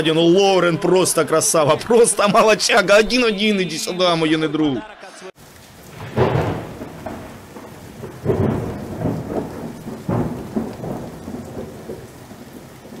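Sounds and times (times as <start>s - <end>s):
steady rain: 5.3s - 13.0s
rolling thunder: 5.6s - 13.0s.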